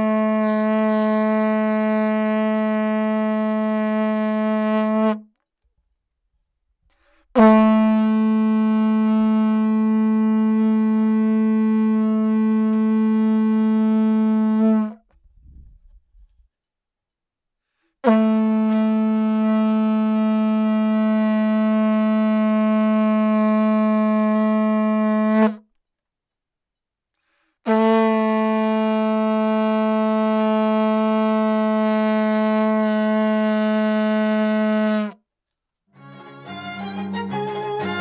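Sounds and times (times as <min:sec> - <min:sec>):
vuvuzela blasts: 0:07.4 - 0:15.0.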